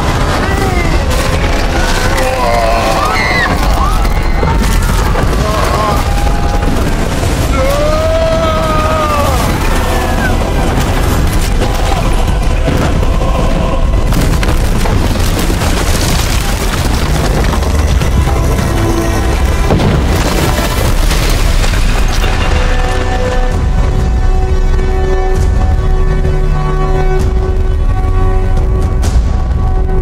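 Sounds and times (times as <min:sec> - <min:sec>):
stone building collapsing rumble: 0:00.0 - 0:30.0
voices crying out: 0:00.2 - 0:11.0.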